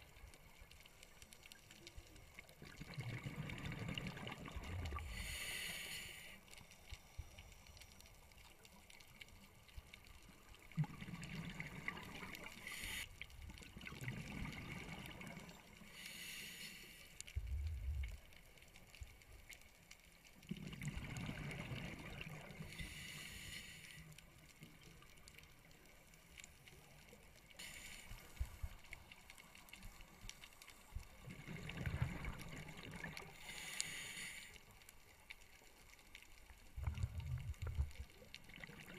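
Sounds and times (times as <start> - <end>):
exhaled bubbles rushing: 2.6 - 5.1, 31.2 - 33.3, 36.8 - 38.9
diver breathing through regulator: 5.0 - 6.4, 12.6 - 13.1, 15.9 - 17.2, 22.7 - 24.1, 33.4 - 34.6.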